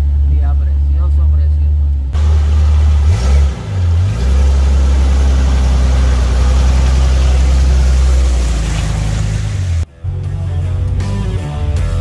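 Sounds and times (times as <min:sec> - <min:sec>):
car engine running: 0:02.2 - 0:09.8.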